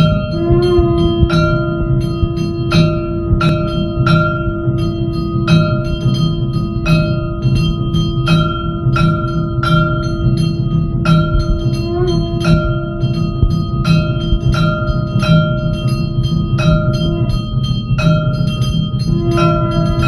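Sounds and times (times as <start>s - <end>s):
bells struck rhythmically: 0.0s - 20.0s
pulsing low beat: 0.0s - 20.0s
steady held tone: 0.0s - 20.0s.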